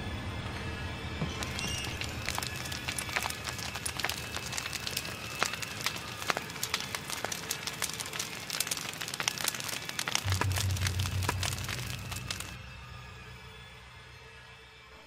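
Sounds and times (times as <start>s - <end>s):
fire crackling and popping: 1.2s - 13.2s
low hum: 10.2s - 14.6s.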